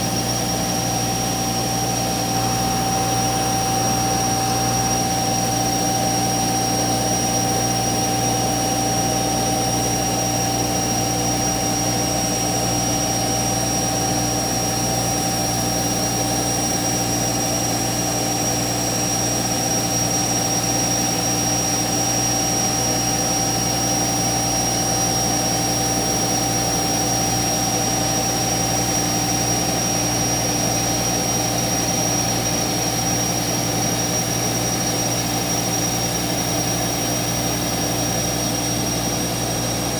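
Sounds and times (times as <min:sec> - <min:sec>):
cnc router running: 0:00.0 - 0:39.9.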